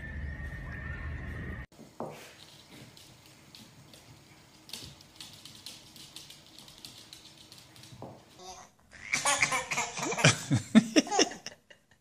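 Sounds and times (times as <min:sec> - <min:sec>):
dog claws clicking on wooden floor: 0:02.3 - 0:08.4.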